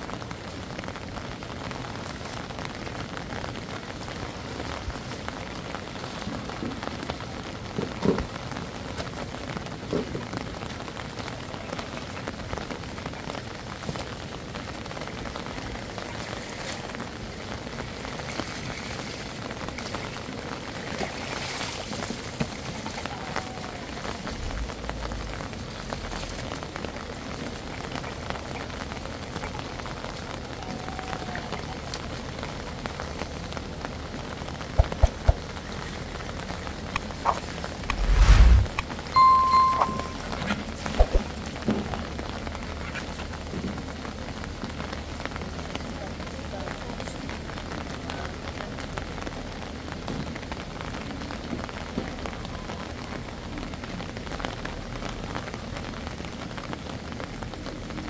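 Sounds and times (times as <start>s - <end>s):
water pattering on hard surface: 31.4s - 38.0s
brief louder sound: 37.8s - 40.4s.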